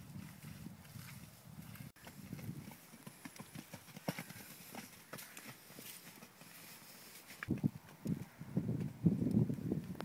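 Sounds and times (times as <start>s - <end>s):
hoofbeats on grass: 0.0s - 8.0s.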